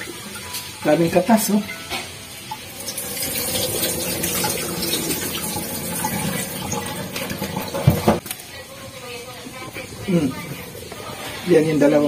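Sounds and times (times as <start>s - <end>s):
liquid stream splashing into sink: 2.6s - 8.2s.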